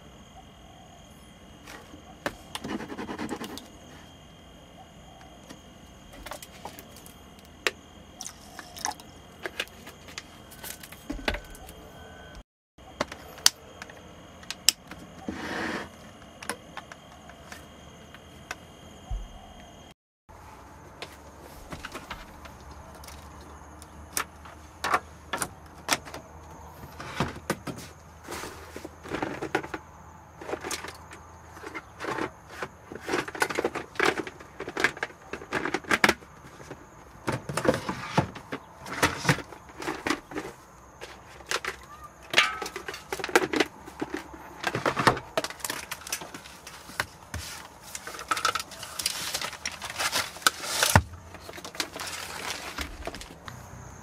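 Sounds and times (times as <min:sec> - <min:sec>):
objects clicking and clattering: 0:30.4 - 0:53.5.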